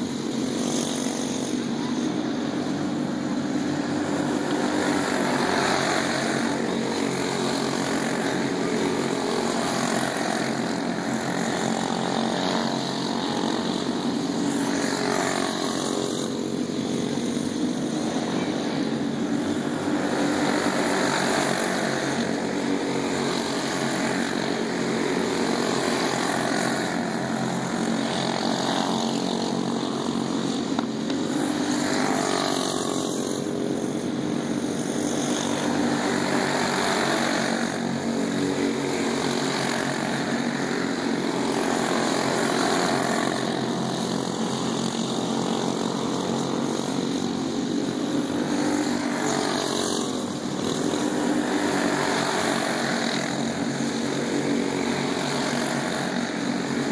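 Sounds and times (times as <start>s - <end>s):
go-kart engines buzzing: 0.0s - 56.9s.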